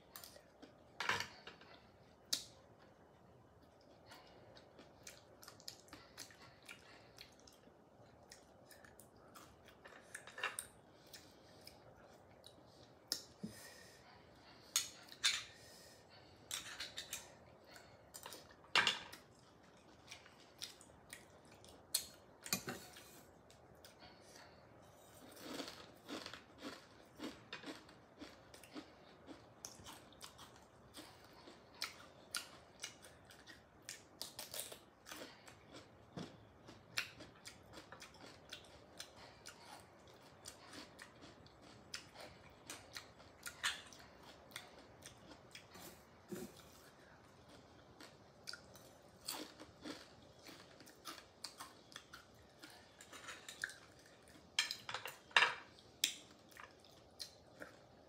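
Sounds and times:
person chewing: 3.6 - 24.2, 25.2 - 58.0.

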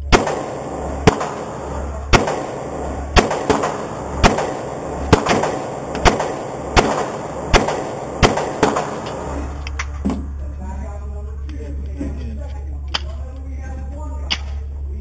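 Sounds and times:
pistol shots echoing indoors: 0.1 - 9.6.

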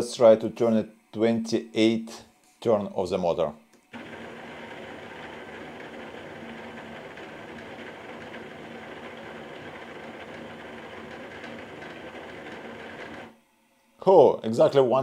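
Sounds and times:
motor low hum: 3.8 - 13.6
plastic gears whirring grind: 3.9 - 13.3.

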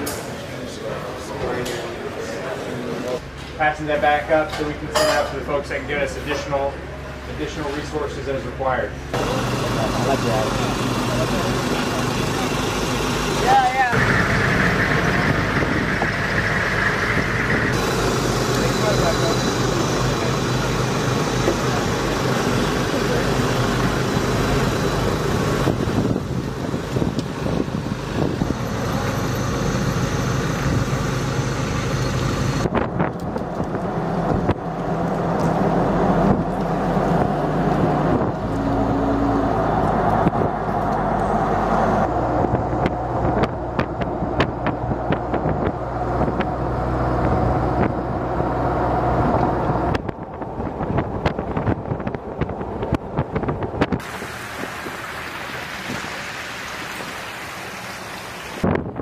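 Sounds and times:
military truck engines running: 0.0 - 59.0
road noise: 0.0 - 59.0.

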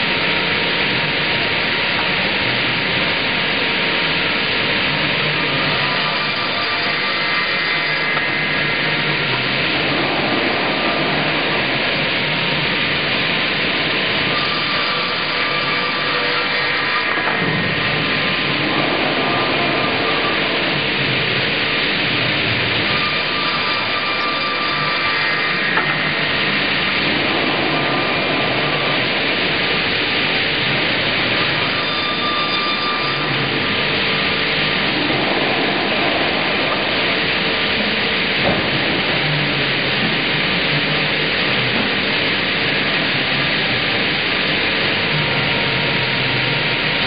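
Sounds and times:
faint steady whines: 0.0 - 47.0.

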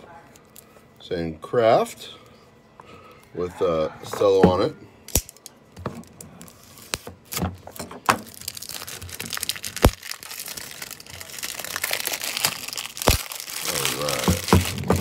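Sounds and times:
cellophane wrapper crinkling: 6.0 - 15.0.

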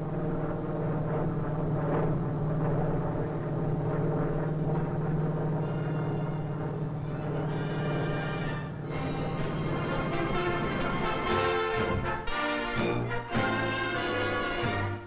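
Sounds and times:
propeller plane engine droning: 0.0 - 15.0
music: 5.6 - 15.0.

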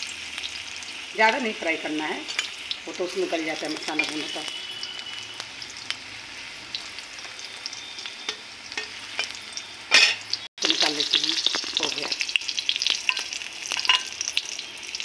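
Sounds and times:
potatoes sizzling in hot oil: 0.0 - 15.0
metal spatula scraping pan: 8.2 - 10.3.

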